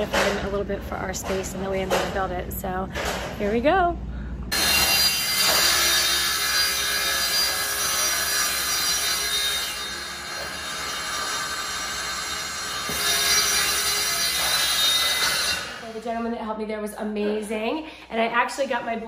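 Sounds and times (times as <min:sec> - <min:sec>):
panel saw cutting plywood: 0:04.6 - 0:15.8.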